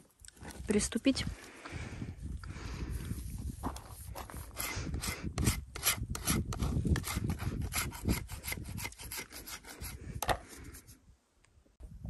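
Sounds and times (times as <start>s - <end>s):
putty knife scraping chalk: 4.4s - 10.9s.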